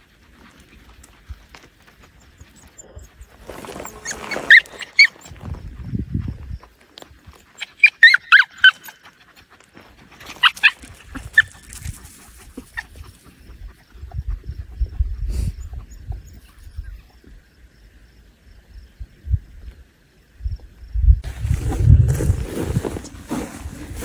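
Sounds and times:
dog whining and yipping: 2.4s - 5.5s, 7.5s - 9.1s, 10.3s - 11.6s.

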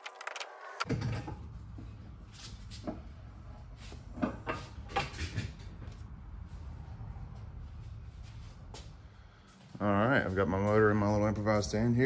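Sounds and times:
metal clunks and knocks: 0.9s - 1.6s.

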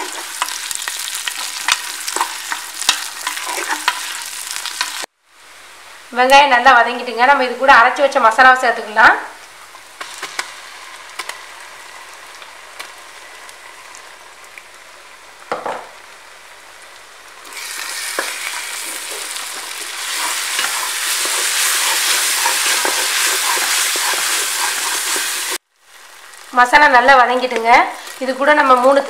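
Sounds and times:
paste sizzling as stirred: 0.0s - 5.1s, 9.7s - 14.2s, 17.4s - 26.5s
onions sizzling in oil: 0.0s - 29.0s.

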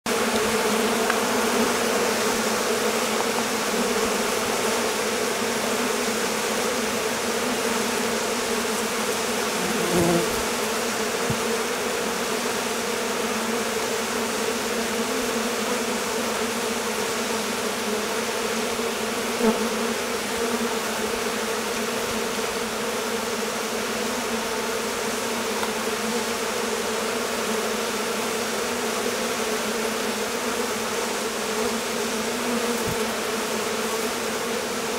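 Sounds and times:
bee colony buzzing: 0.1s - 34.9s
single bee buzzing close: 0.1s - 34.9s.

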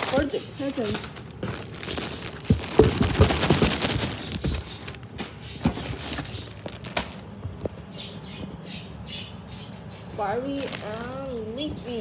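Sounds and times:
plastic bags crinkling: 0.0s - 7.9s, 10.4s - 11.6s.

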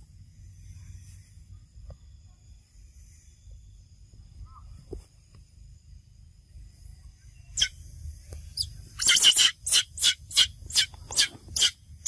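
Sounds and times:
monkey shrieking: 9.0s - 11.8s.

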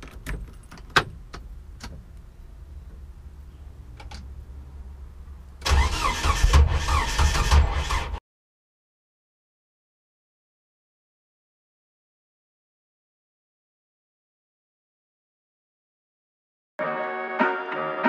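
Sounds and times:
starter cranking engine: 5.6s - 8.2s.

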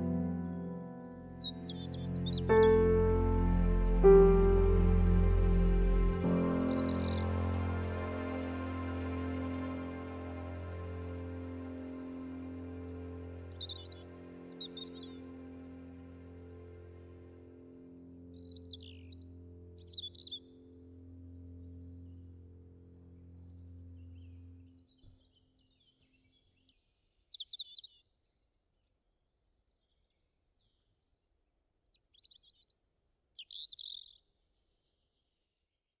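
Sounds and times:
birds chirping: 0.0s - 8.2s, 13.1s - 17.6s, 18.3s - 20.6s, 22.9s - 28.0s, 32.1s - 35.2s
low music chord: 0.0s - 24.8s.

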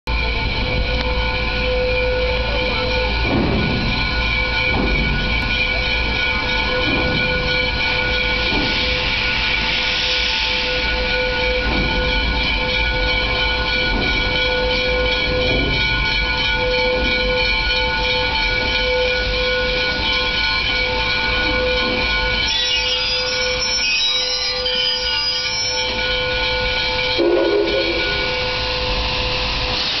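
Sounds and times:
steam locomotive rumble: 0.1s - 30.0s
high whine: 18.7s - 30.0s
low-pitched tone: 27.0s - 30.0s.

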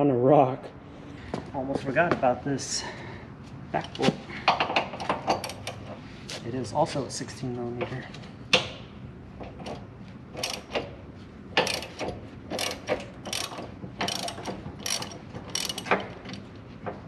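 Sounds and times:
hand ratchet clicking: 10.4s - 10.9s, 11.6s - 16.5s.

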